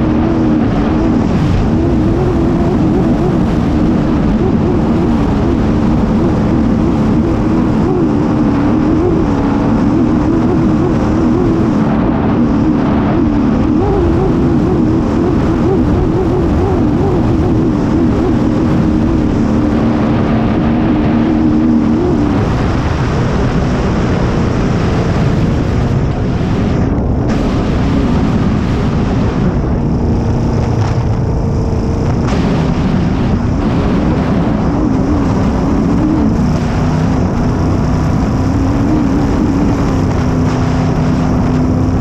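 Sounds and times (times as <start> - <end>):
boat engine running hard: 0.0 - 42.0
wind rush: 0.0 - 42.0.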